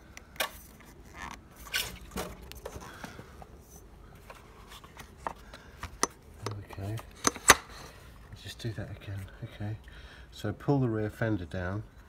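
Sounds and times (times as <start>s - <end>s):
scooter clicks and knocks: 5.2s - 7.8s.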